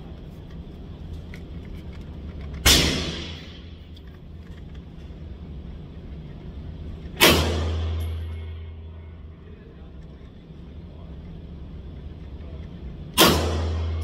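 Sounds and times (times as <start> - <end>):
pistol gunshot: 2.6 - 3.6, 7.2 - 8.0, 13.2 - 14.0.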